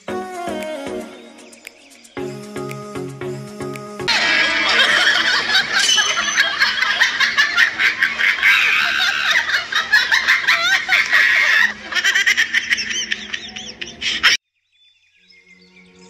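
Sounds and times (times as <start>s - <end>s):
people laughing: 4.1s - 14.4s.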